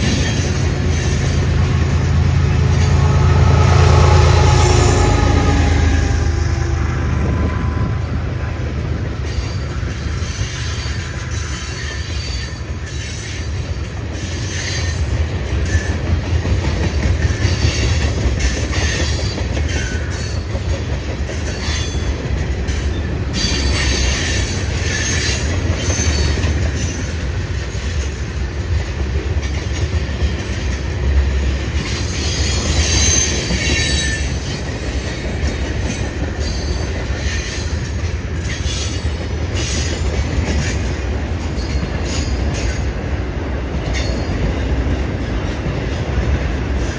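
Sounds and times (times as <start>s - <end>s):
train wheels rumbling on rail: 0.0s - 46.9s
high-pitched wheel squeal: 32.1s - 34.6s.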